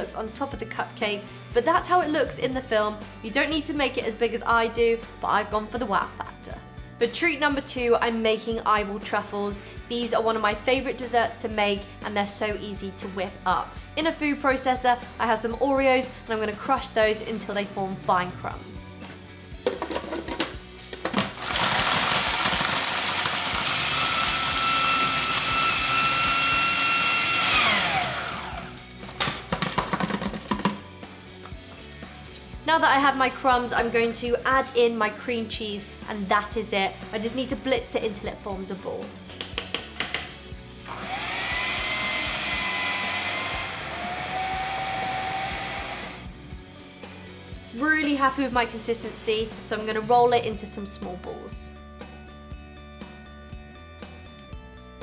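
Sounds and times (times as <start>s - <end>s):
blade crushing cookies: 21.3s - 30.6s
food processor motor whine: 21.4s - 28.8s, 40.8s - 46.3s.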